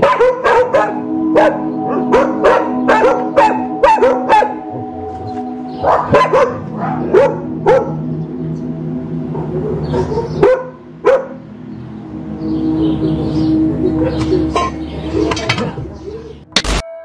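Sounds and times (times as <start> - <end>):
dog barking: 0.0 - 4.7, 5.8 - 8.0, 9.5 - 11.4.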